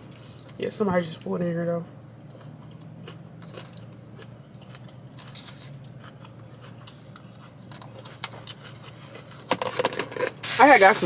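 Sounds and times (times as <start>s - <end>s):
chewing and crunching: 0.0s - 1.4s, 2.0s - 9.8s
low steady hum: 0.0s - 11.0s.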